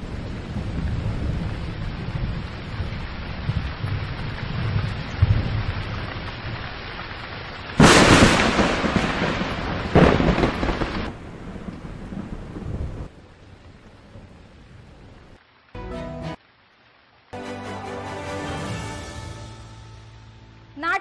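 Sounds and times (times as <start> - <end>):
loud thunderclaps: 0.0 - 6.6, 7.8 - 13.1
low thunder rumbles: 0.0 - 15.4
heavy rain falling: 0.0 - 20.7.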